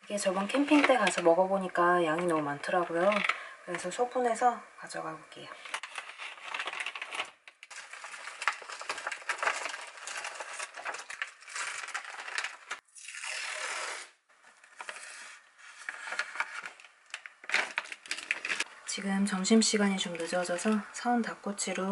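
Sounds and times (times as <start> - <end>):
plastic packaging crinkling: 0.3 - 3.9, 5.6 - 18.7
masking tape pulled off roll: 10.2 - 18.7.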